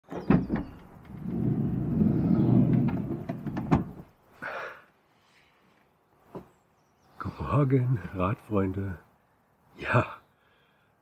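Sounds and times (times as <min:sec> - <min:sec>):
sliding door rumbling along track: 0:00.2 - 0:04.1
door stopping with a clunk: 0:02.6 - 0:04.0.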